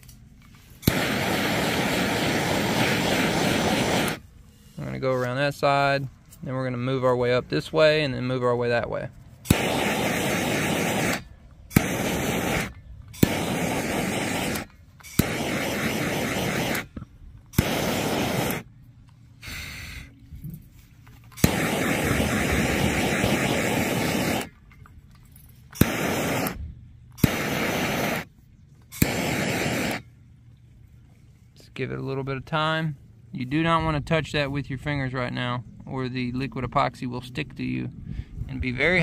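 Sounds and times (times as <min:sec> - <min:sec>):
blowtorch flame hissing: 0:00.8 - 0:04.2, 0:09.5 - 0:18.7, 0:19.4 - 0:20.1, 0:21.4 - 0:24.5, 0:25.8 - 0:26.6, 0:27.2 - 0:28.3, 0:29.0 - 0:30.1
blowtorch igniter click: 0:00.8 - 0:04.2, 0:09.5 - 0:18.6, 0:25.8 - 0:26.6, 0:27.2 - 0:28.3, 0:28.9 - 0:30.0.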